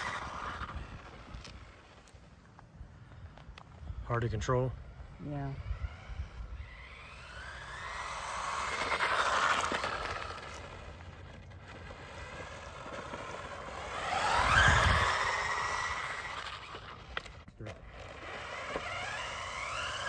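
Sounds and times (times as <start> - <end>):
electric motor whining: 0.0 - 2.2, 3.6 - 20.0.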